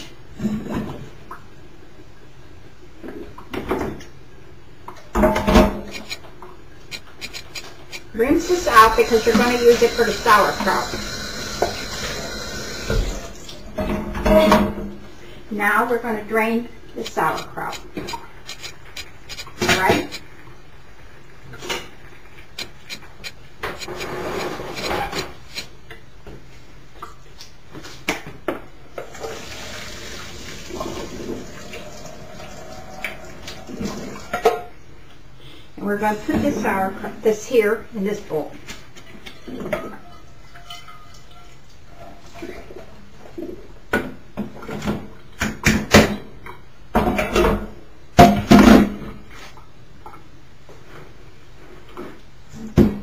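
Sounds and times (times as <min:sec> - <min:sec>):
liquid pouring: 0:08.4 - 0:13.7, 0:29.1 - 0:34.4.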